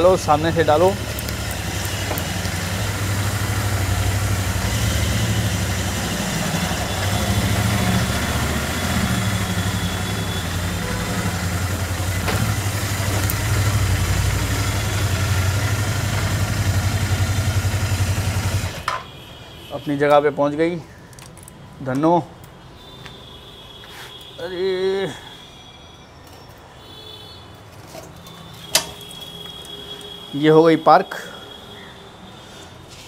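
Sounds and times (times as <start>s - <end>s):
motorcycle engine running at low revs: 0.2s - 18.8s.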